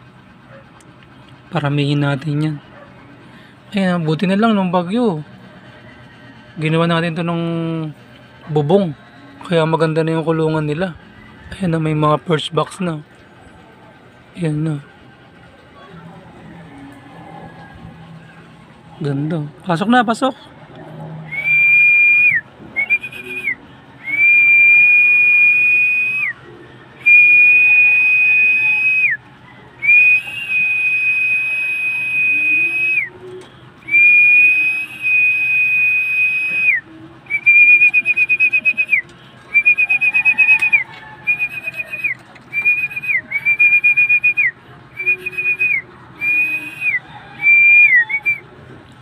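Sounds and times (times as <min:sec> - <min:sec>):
high whistle notes: 0:21.3 - 0:26.4, 0:29.8 - 0:33.2, 0:33.8 - 0:48.4.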